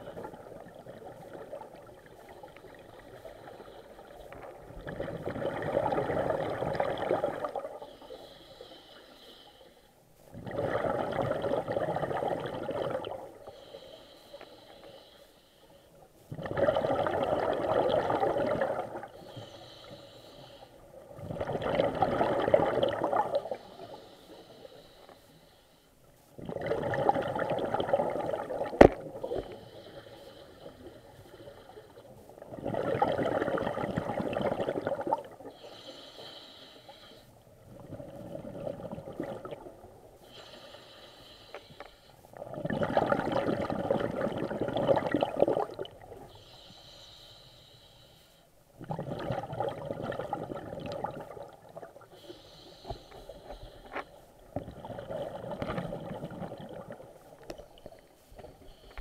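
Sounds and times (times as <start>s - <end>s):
bubbling regulator exhalations: 4.8s - 7.7s, 10.3s - 13.2s, 16.3s - 19.1s, 21.2s - 23.6s, 26.4s - 29.4s, 32.5s - 35.3s, 42.4s - 46.0s, 48.8s - 52.1s, 54.6s - 57.0s
hissing inhalation: 52.1s - 54.2s.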